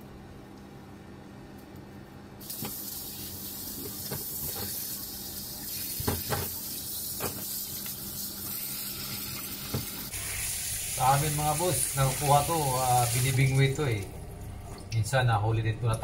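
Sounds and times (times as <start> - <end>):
tap water running into sink: 2.4 - 14.1.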